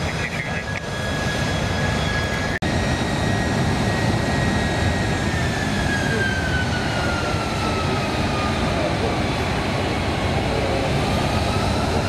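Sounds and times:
jet engines roaring with whine: 0:00.0 - 0:12.0.

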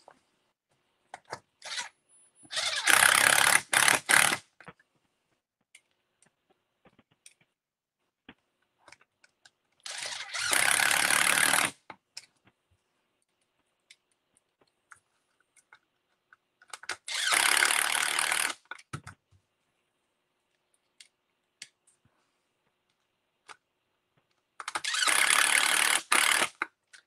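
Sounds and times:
electric screwdriver driving screws: 0:02.5 - 0:04.4, 0:09.9 - 0:11.8, 0:17.1 - 0:18.6, 0:24.7 - 0:26.6.

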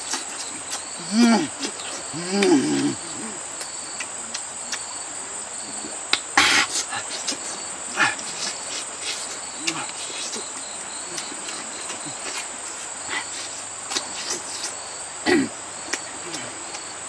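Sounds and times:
man humming: 0:00.1 - 0:03.5, 0:05.6 - 0:08.6, 0:09.5 - 0:12.5, 0:16.2 - 0:16.7
chewing clicks: 0:03.6 - 0:04.9.

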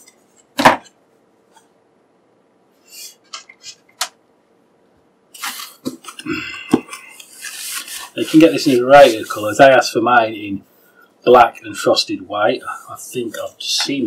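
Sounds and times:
foam and plastic wrap rustling: 0:07.4 - 0:09.5.

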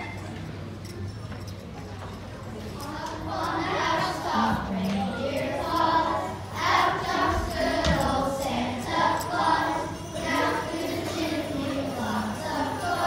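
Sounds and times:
children singing together: 0:02.8 - 0:13.0.

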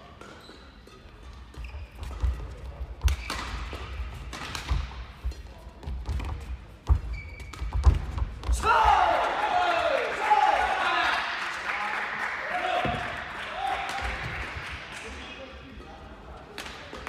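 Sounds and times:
racket hitting shuttlecock: 0:00.2 - 0:05.4.

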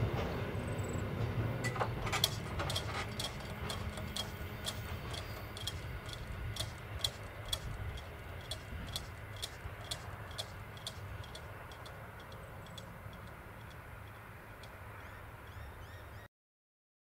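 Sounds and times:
mechanical crossing bell striking: 0:01.6 - 0:14.8
bird chirping: 0:03.1 - 0:16.3.

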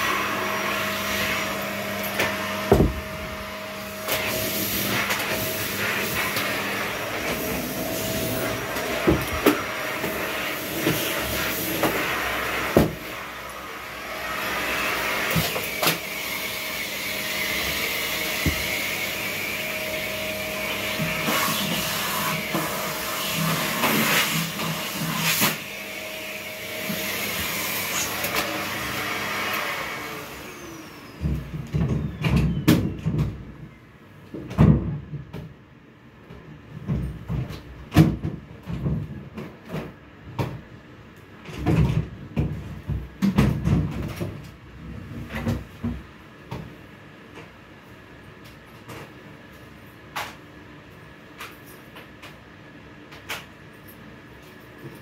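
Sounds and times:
vacuum cleaner whining: 0:00.0 - 0:33.9.

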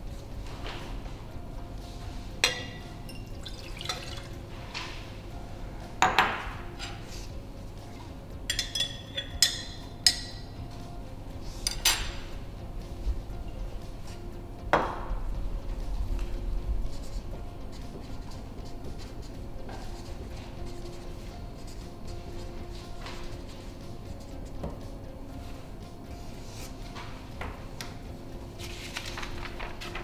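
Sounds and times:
liquid poured into glass beakers: 0:03.2 - 0:04.4
glass clinks: 0:08.5 - 0:10.2.

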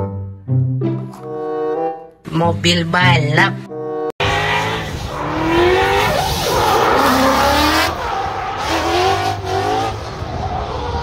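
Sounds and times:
car engine revving: 0:04.2 - 0:11.0.

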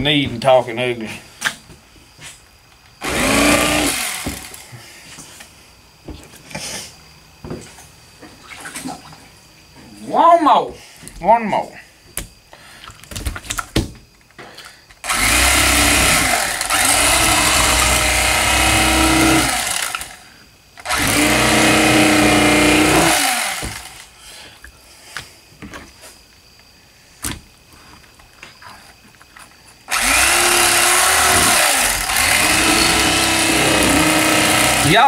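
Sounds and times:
electric fillet knife whining: 0:03.0 - 0:04.7, 0:15.1 - 0:20.2, 0:20.8 - 0:24.1, 0:29.9 - 0:35.0.

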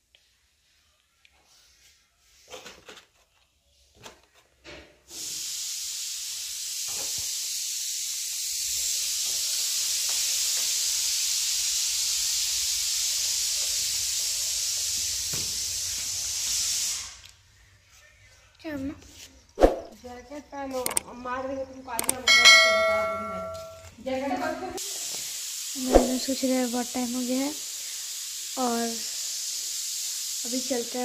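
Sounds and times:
loud steady hiss: 0:05.1 - 0:17.4, 0:24.7 - 0:31.0.

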